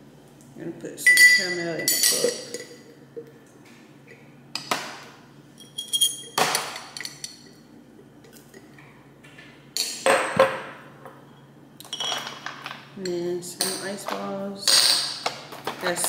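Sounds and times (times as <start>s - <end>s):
glass cup and straw clinking: 1.1s - 2.9s.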